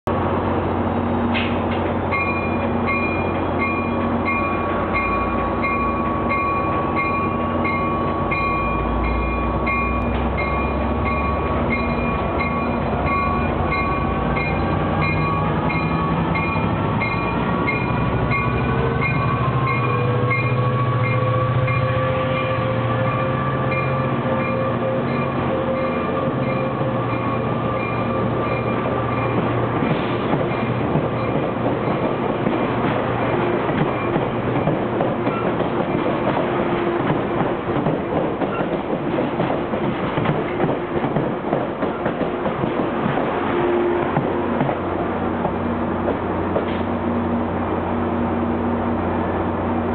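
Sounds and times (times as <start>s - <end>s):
train coaches rolling past: 0.1s - 49.9s
locomotive bell ringing: 2.1s - 32.1s.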